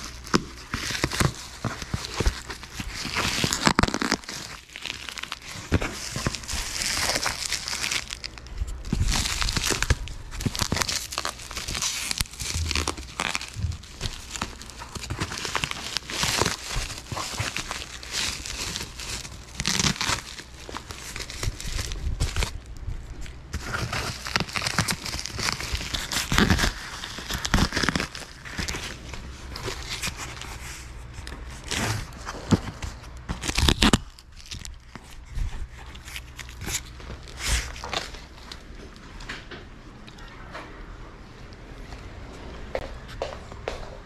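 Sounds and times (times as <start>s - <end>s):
bubble wrap crinkling and tearing: 0.0s - 39.0s.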